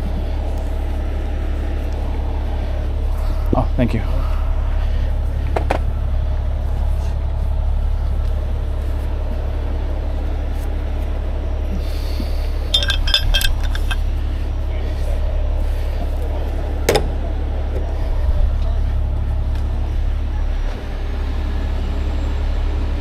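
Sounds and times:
diesel engine droning: 0.0 - 23.0
metallic clinks of rigging: 12.7 - 14.1.

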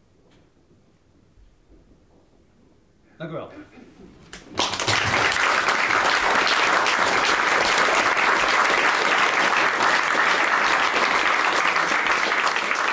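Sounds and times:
audience applauding: 4.3 - 12.9.

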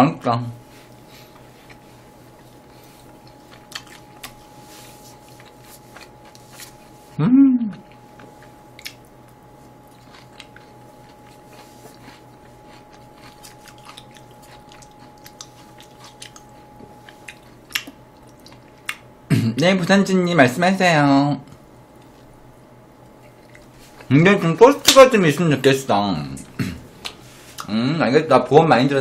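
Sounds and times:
chewing crunchy food: 0.8 - 7.1, 7.8 - 19.2, 23.0 - 24.1
person humming mm: 7.2 - 7.9.

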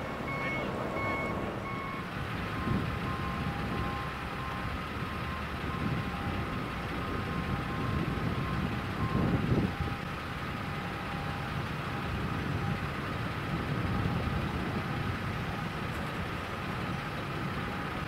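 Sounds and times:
electronic warning beeps: 0.0 - 4.7
vehicles idling: 0.0 - 18.0.

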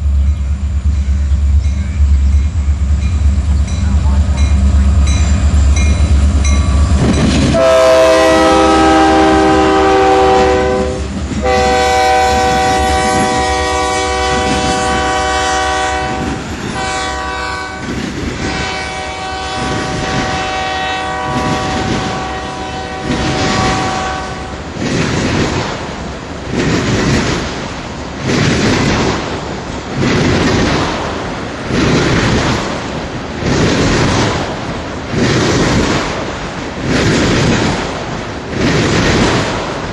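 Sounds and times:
diesel locomotive rumble: 0.0 - 39.9
train air horn blasts: 7.5 - 24.7
train wheels clicking over rail joints: 22.9 - 39.9.

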